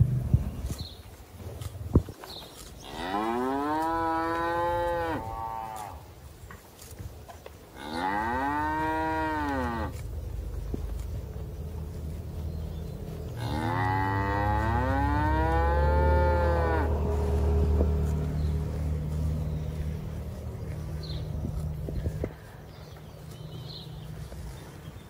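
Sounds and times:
low steady rumble: 0.0 - 2.0, 8.3 - 25.0
cattle mooing: 2.8 - 6.0, 7.8 - 10.0, 13.4 - 19.1.

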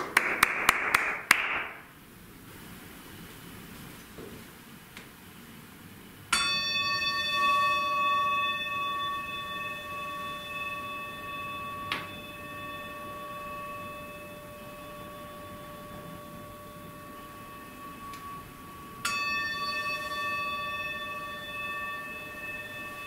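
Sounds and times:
singing bowl ringing: 6.3 - 23.0.

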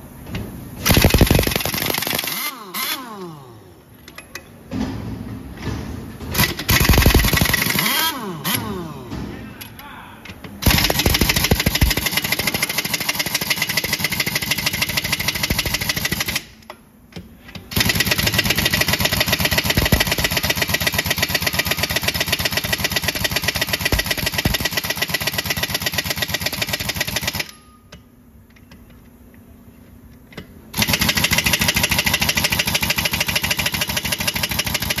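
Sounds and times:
air impact wrench hammering: 0.8 - 3.4, 5.6 - 9.2, 10.6 - 16.7, 17.4 - 27.6, 30.7 - 35.0.

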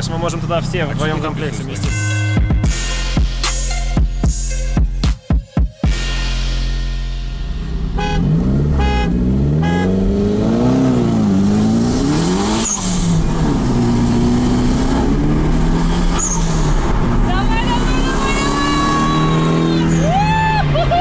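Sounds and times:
car engine revving: 5.9 - 21.0.

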